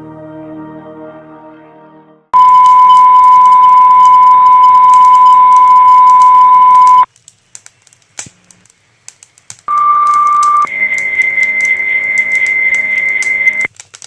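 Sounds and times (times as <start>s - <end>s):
loud steady radio tone: 2.4s - 7.1s, 9.7s - 13.7s
two-tone page: 2.4s - 7.1s, 9.7s - 13.7s.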